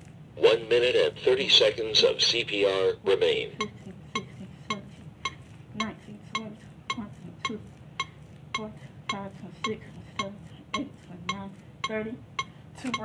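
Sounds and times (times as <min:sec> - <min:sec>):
metronome beeping: 0:03.6 - 0:13.0.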